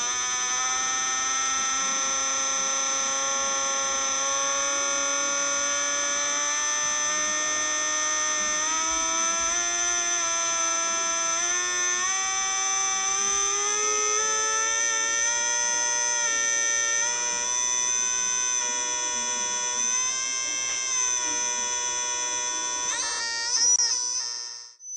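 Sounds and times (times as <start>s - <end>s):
electrical buzzing whine: 0.0s - 24.9s.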